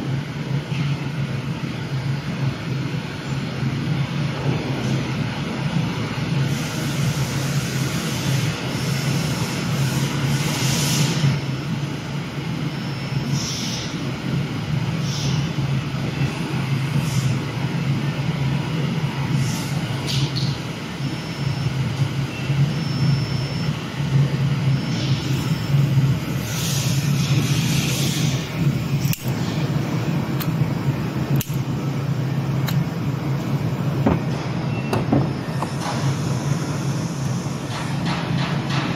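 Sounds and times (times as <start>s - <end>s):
low mechanical rumble: 14.0s - 38.2s.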